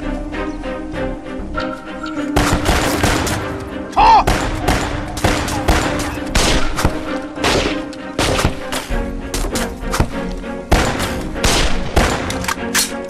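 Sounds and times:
dramatic background music: 0.0s - 13.0s
rifle shots: 2.4s - 3.5s, 4.2s - 8.7s, 10.7s - 12.4s.

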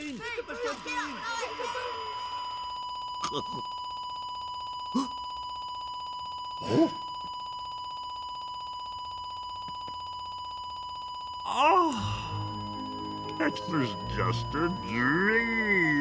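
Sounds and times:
high-pitched electronic buzzing: 0.0s - 4.4s.

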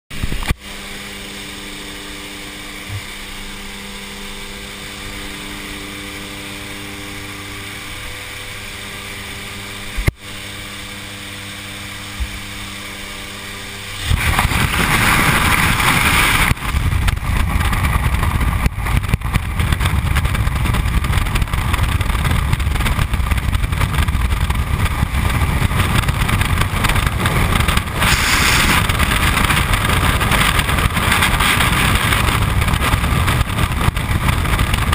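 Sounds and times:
airplane engine drone in cabin: 0.1s - 34.9s
wind rushing over microphone: 13.4s - 34.9s.

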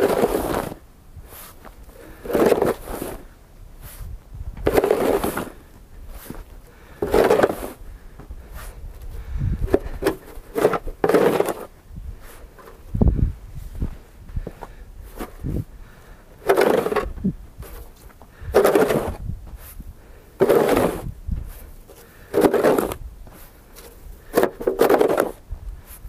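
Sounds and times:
snow shovel scraping: 0.0s - 7.8s, 10.0s - 12.5s, 16.4s - 19.8s, 20.4s - 26.0s.

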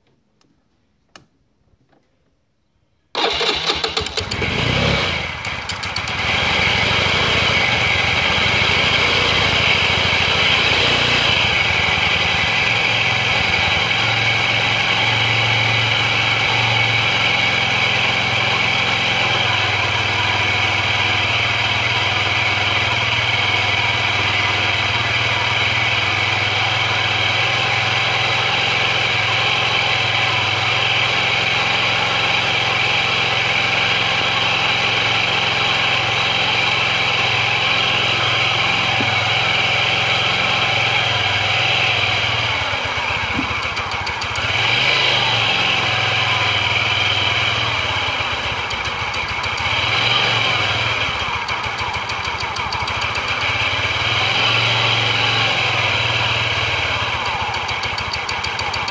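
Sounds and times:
scooter engine idling: 3.2s - 58.9s.

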